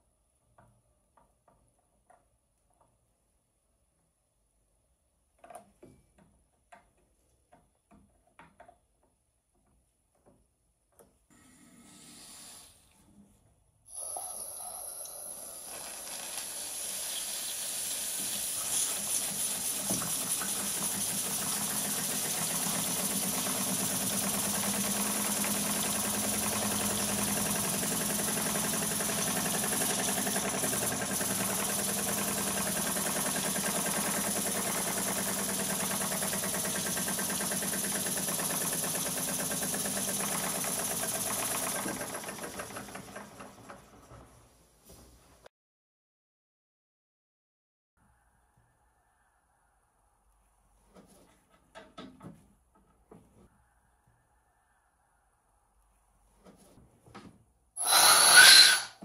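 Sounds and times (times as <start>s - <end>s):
steam engine hiss and chuffing: 13.9s - 41.8s.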